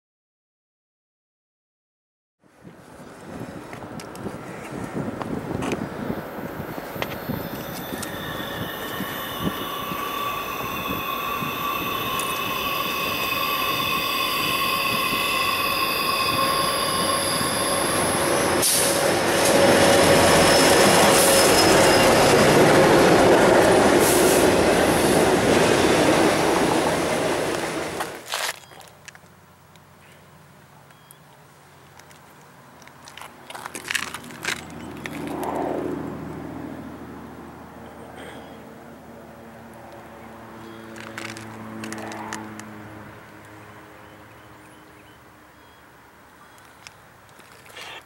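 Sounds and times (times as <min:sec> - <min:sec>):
locomotive engine and rail noise: 0:02.4 - 0:48.0
train wheels squealing: 0:07.0 - 0:22.9.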